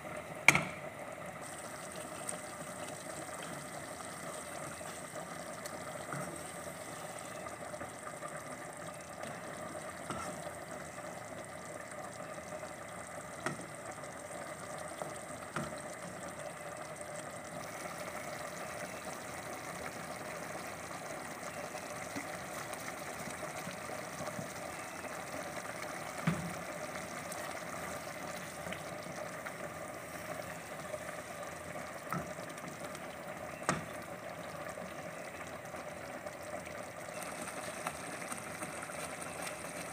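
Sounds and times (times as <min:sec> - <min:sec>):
sauce sizzling in pot: 0:00.1 - 0:39.9.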